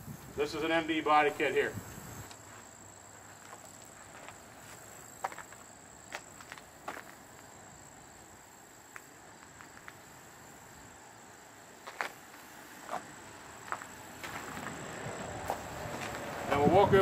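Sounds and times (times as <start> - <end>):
soft scuffs and clicks: 11.8 - 14.8, 15.4 - 16.5.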